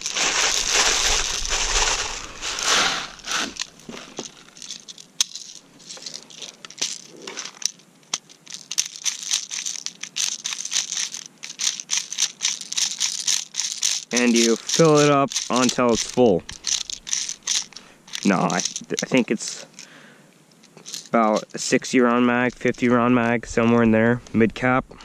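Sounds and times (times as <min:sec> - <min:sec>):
plastic pellets pouring with rattling hiss: 0:00.0 - 0:07.7, 0:08.4 - 0:19.8.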